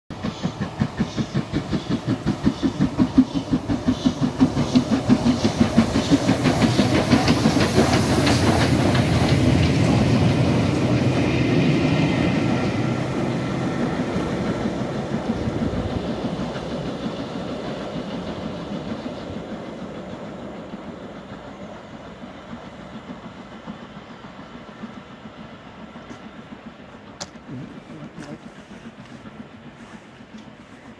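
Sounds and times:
steam locomotive exhaust beats: 0:00.1 - 0:30.9
wheels clattering on rails: 0:00.1 - 0:30.9.

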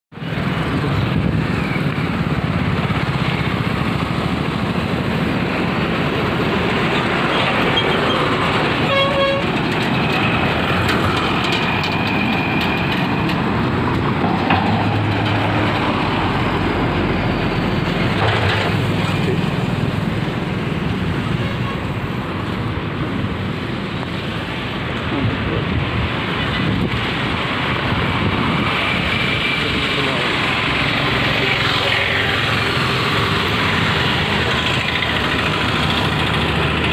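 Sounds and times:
road traffic passing: 0:00.1 - 0:36.9
vehicle horn honking: 0:08.8 - 0:09.5, 0:21.3 - 0:21.9.

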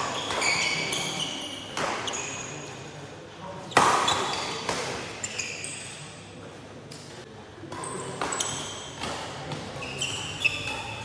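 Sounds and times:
shoes squeaking on court: 0:00.0 - 0:02.7, 0:03.7 - 0:06.0, 0:07.8 - 0:11.0.

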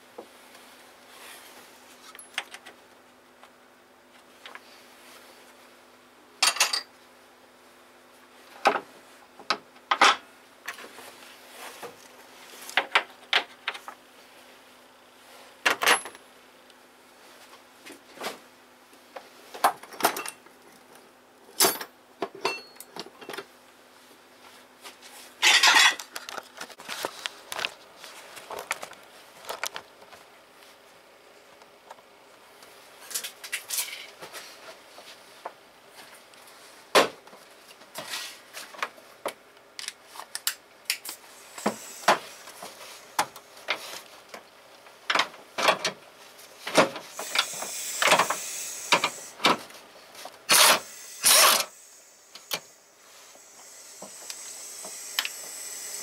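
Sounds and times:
steady low hum: 0:40.9 - 0:56.0.

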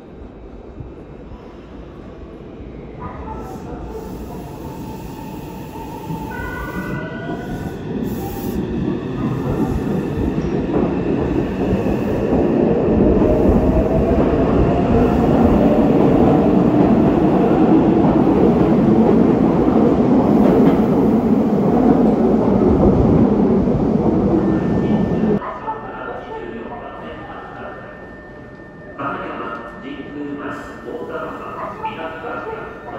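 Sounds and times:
train wheels rumbling: 0:03.6 - 0:25.4.

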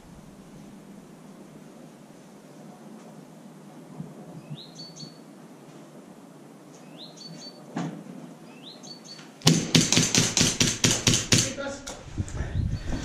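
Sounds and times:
faint steady hiss: 0:00.0 - 0:13.0
small bird calling: 0:04.4 - 0:05.3, 0:06.7 - 0:07.7, 0:08.4 - 0:09.4.

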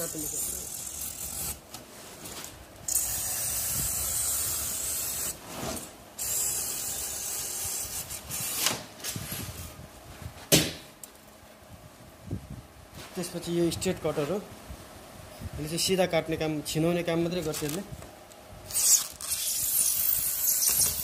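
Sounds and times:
sharp knocks: 0:10.5 - 0:10.9
blade scraping through panel: 0:18.7 - 0:21.0.

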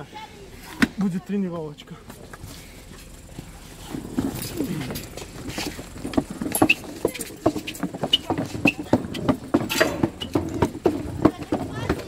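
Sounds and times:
footsteps on wooden planks: 0:00.7 - 0:12.0
short high squeaks: 0:06.5 - 0:08.9.

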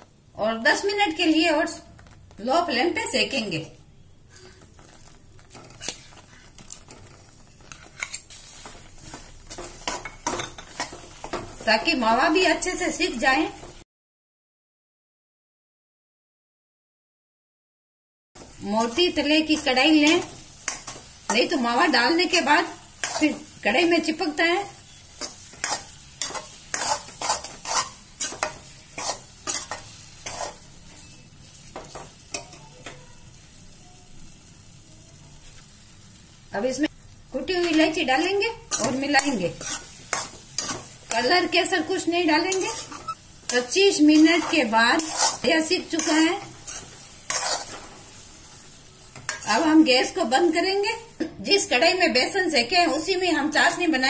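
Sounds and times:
faint sizzle of ghee: 0:00.0 - 0:13.8, 0:18.4 - 0:54.0
spoon scraping and squishing: 0:04.3 - 0:12.0, 0:18.4 - 0:23.6, 0:24.7 - 0:33.0, 0:37.5 - 0:49.7.

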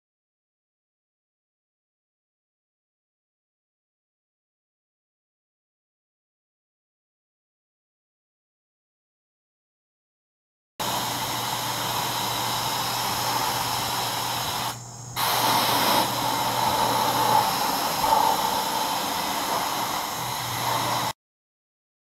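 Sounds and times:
air spray gun hissing: 0:10.8 - 0:21.2.

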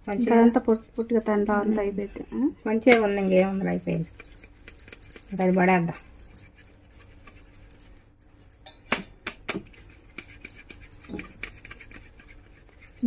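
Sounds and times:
powder scratching through a sieve: 0:00.1 - 0:07.9, 0:09.6 - 0:13.0
sharp clinks on steel bowl: 0:08.3 - 0:09.4.

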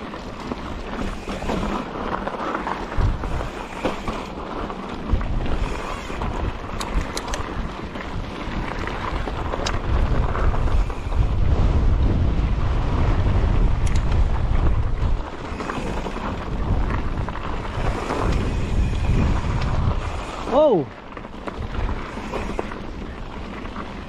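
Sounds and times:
bike rattling over dirt trail: 0:00.0 - 0:24.0
wind buffeting microphone: 0:00.0 - 0:24.0
sharp clicks: 0:06.8 - 0:07.5, 0:13.8 - 0:14.2.

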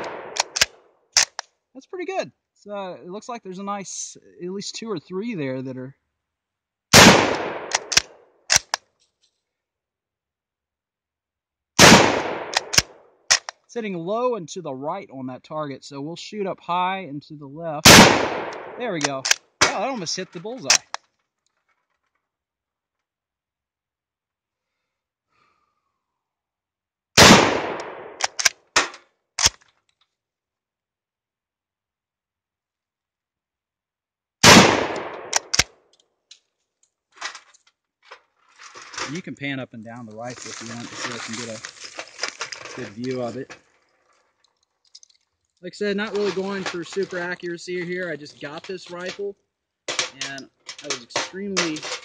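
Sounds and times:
rifle shot: 0:00.0 - 0:01.4, 0:06.9 - 0:08.8, 0:11.8 - 0:13.5, 0:17.8 - 0:19.9, 0:27.2 - 0:29.6, 0:34.4 - 0:35.8
rifle bolt clicks: 0:00.0 - 0:01.5, 0:07.0 - 0:08.9, 0:11.8 - 0:13.6, 0:17.9 - 0:19.8, 0:27.6 - 0:29.7, 0:34.6 - 0:36.4.

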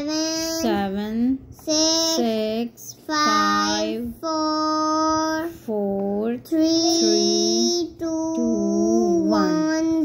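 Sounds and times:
person counting in sing-song voice: 0:05.8 - 0:10.0.

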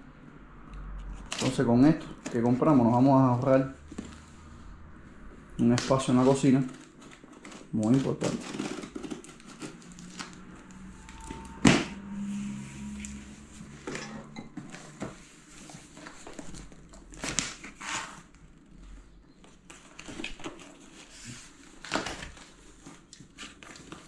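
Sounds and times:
packaging rustling: 0:05.5 - 0:11.5, 0:14.6 - 0:24.0.

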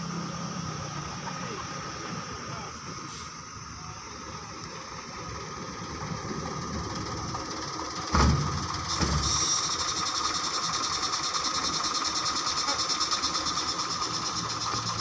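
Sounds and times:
diesel truck engine idling: 0:00.0 - 0:15.0
fast even rattle: 0:06.0 - 0:15.0.

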